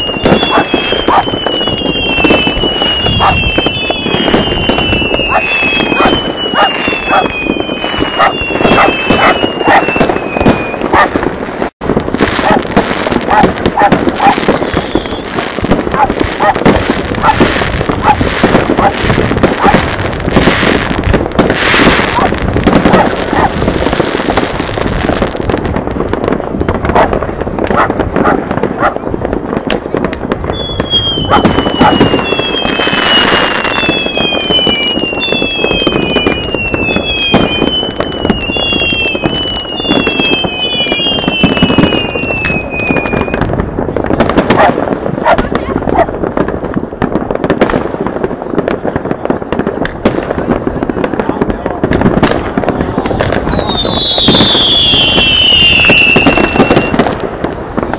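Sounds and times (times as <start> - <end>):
falling firework whistles: 0.0 - 24.6, 30.4 - 43.5, 52.6 - 57.9
fireworks crackling and banging: 0.0 - 57.9.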